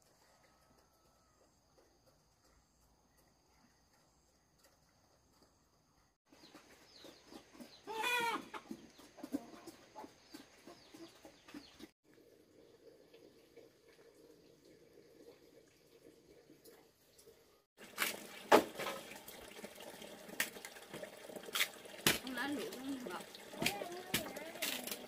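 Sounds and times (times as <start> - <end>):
chickens clucking: 6.3 - 11.9.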